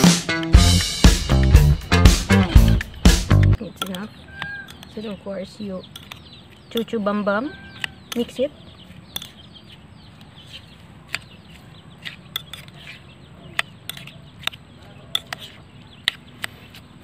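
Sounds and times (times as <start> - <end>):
spoon stirring vegetables in bowl: 10.2 - 17.0.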